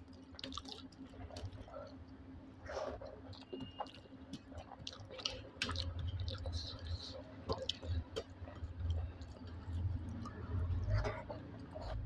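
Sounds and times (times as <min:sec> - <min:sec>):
wet mouth clicks and smacks: 0:00.0 - 0:02.0, 0:03.2 - 0:10.4
person chewing: 0:00.0 - 0:12.0.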